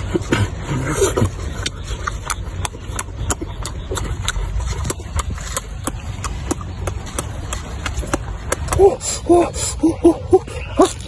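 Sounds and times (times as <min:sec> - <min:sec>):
chewing crisp food crunching: 0:00.0 - 0:08.9
steady low rumble: 0:00.0 - 0:11.0.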